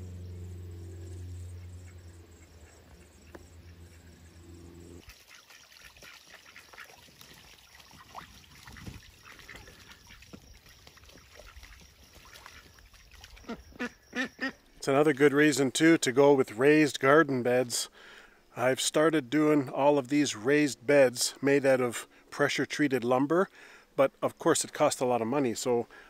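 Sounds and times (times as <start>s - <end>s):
steady low hum: 0.0s - 5.0s
ducks splashing water: 5.0s - 14.6s
ducks quacking: 7.9s - 10.4s, 13.4s - 14.6s.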